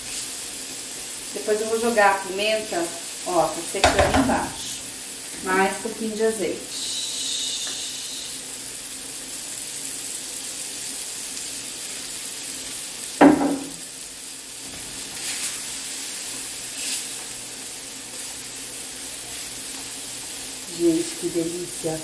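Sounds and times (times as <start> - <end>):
food sizzling in a frying pan: 0.0 - 22.0
sharp knock: 13.2 - 13.7.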